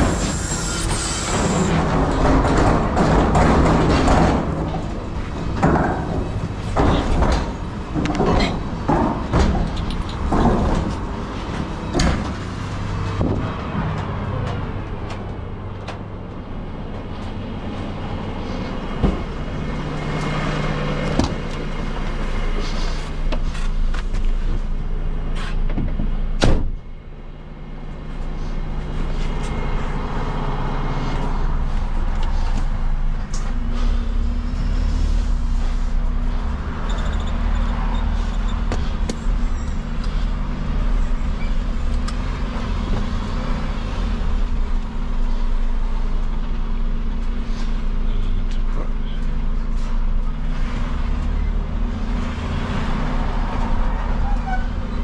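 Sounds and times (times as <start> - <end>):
knocks and clattering: 0.0 - 18.0
diesel truck engine running: 0.0 - 55.0.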